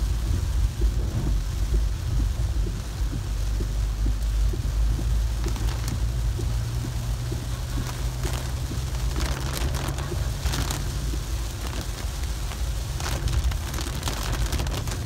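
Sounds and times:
engine and tyres rumbling on wet road: 0.0s - 15.0s
heavy rain on car: 0.0s - 15.0s.

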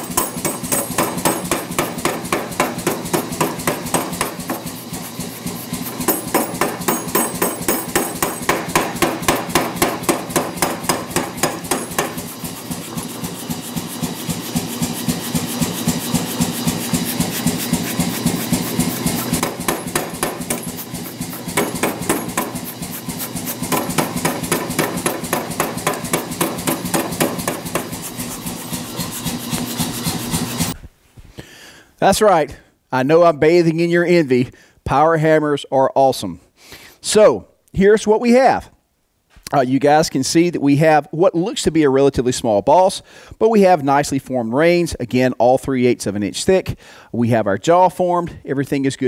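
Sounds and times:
machine running hum: 0.0s - 30.8s
power hammer striking steel: 0.0s - 30.8s.

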